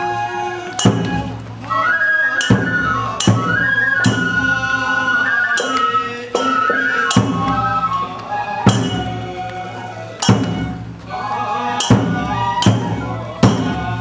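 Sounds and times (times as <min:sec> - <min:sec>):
flute melody: 0:00.0 - 0:14.0
taiko drum strikes: 0:00.8 - 0:01.5, 0:02.4 - 0:04.7, 0:05.5 - 0:09.3, 0:10.2 - 0:11.1, 0:11.8 - 0:14.0.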